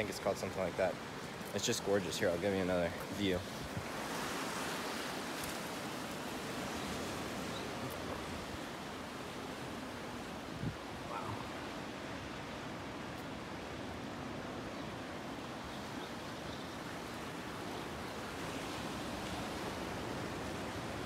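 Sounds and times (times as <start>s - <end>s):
small waves washing over rocks: 3.4s - 10.5s.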